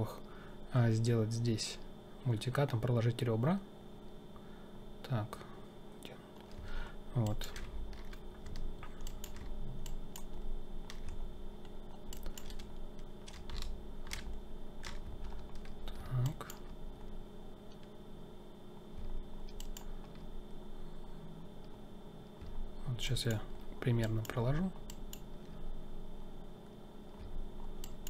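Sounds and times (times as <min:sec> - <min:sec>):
faint steady hum: 0:00.0 - 0:28.0
keyboard clicks: 0:06.4 - 0:17.1, 0:19.0 - 0:20.3, 0:24.0 - 0:25.6, 0:27.2 - 0:28.0
computer mouse clicks: 0:07.2 - 0:16.8, 0:19.0 - 0:20.3, 0:24.0 - 0:25.6, 0:27.2 - 0:28.0.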